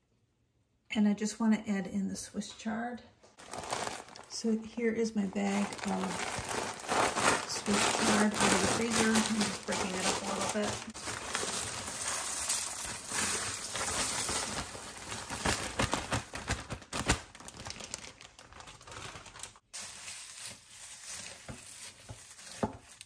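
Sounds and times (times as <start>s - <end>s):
leaves rustling: 3.4s - 4.3s, 5.4s - 16.1s, 18.9s - 23.0s
plastic bag crinkling: 3.4s - 23.0s.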